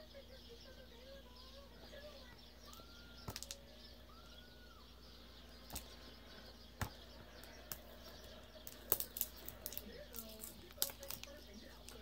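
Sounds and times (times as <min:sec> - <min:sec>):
chirp-like whistle: 0:02.6 - 0:05.3.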